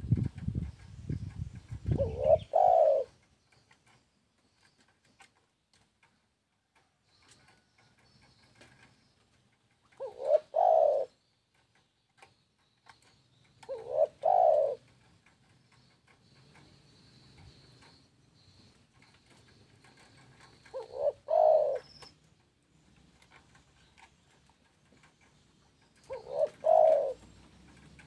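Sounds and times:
dove cooing: 1.7 - 3.2, 9.8 - 11.2, 13.0 - 18.0, 19.0 - 22.2, 24.9 - 28.0.

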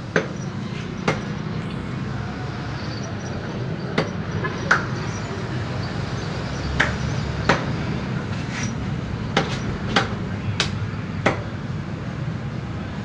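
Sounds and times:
cleaver chopping on wooden block: 6.8 - 7.7, 9.4 - 11.5.

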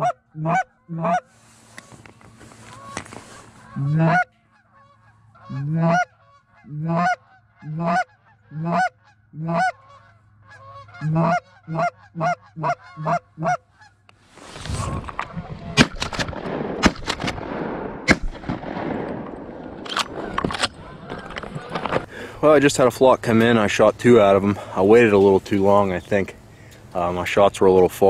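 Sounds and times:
geese honking: 0.0 - 14.2, 20.1 - 22.3
rustling: 1.3 - 3.8, 13.8 - 16.5.

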